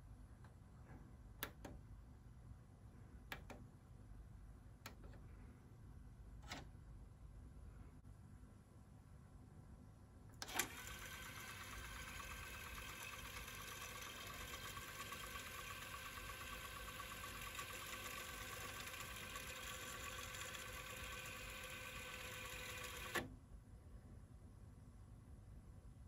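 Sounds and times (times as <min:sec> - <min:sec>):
cassette tape fast-winding whir: 0:10.4 - 0:23.3.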